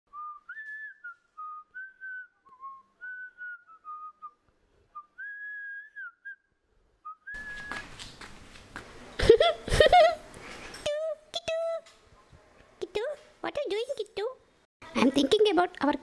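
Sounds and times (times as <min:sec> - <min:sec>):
person whistling a tune: 0:00.1 - 0:07.8.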